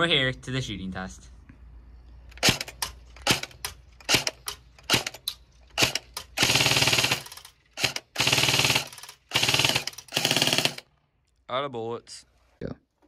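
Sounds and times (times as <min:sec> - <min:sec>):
airsoft rifle full-auto bursts: 0:02.4 - 0:10.9.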